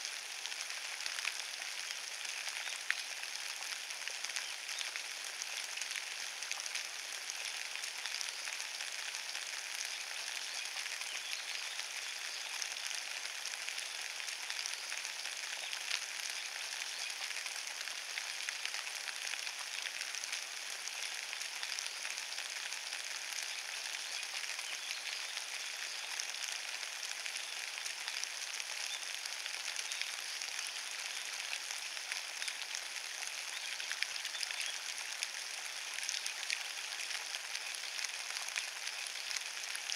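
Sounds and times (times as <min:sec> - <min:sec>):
rain falling on leaves: 0:00.0 - 0:39.9.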